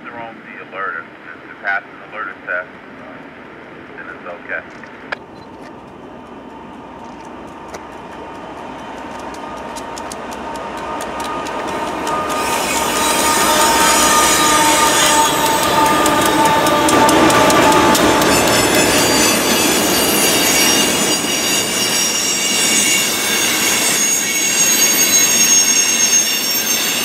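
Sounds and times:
freight train passing: 0.0s - 27.0s
wheels clicking over rail joints: 4.7s - 21.1s
high squeal from wheels: 10.8s - 27.0s.

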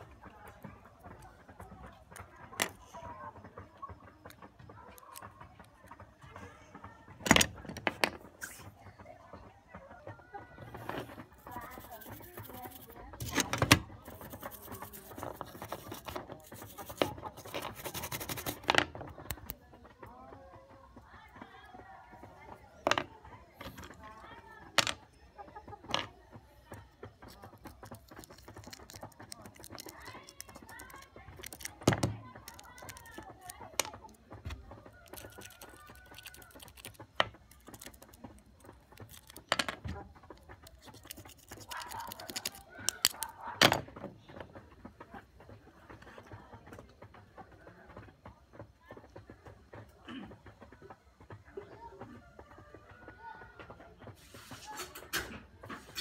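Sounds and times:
toothbrush scrubbing circuit board: 11.3s - 13.3s, 14.0s - 18.7s, 27.2s - 31.8s, 35.0s - 39.5s, 40.3s - 43.3s.

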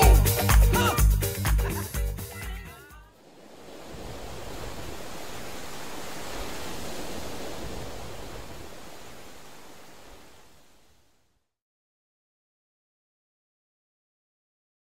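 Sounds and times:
steady rushing noise: 3.1s - 11.2s.

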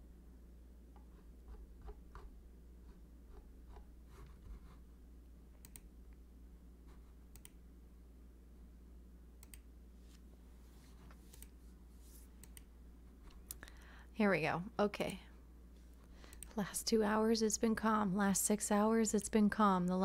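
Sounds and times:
low steady hum: 0.0s - 20.0s
computer mouse clicks: 5.6s - 5.9s, 7.3s - 7.6s, 9.4s - 9.7s, 11.2s - 11.6s, 12.4s - 12.7s, 16.2s - 16.6s.

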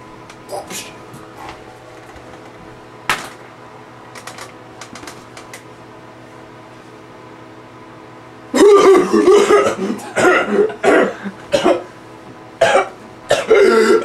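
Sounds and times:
man coughing hard: 8.5s - 11.9s, 12.6s - 14.0s.

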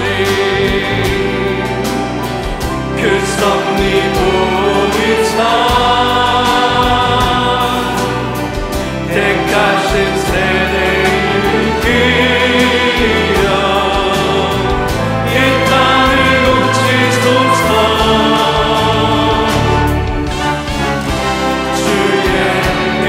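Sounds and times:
band with drums and bass: 0.0s - 23.0s
choir singing worship song: 0.0s - 23.0s.

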